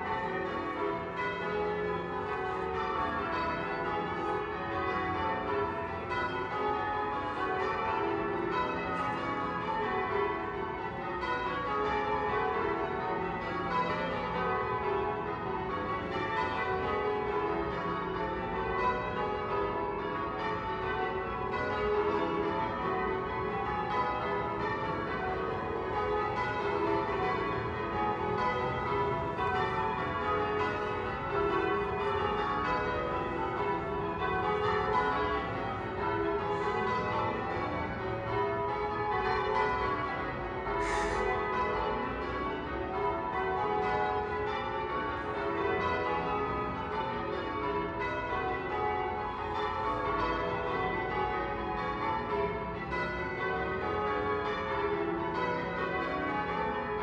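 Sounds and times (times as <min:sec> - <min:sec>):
church bells ringing: 0:00.0 - 0:57.0.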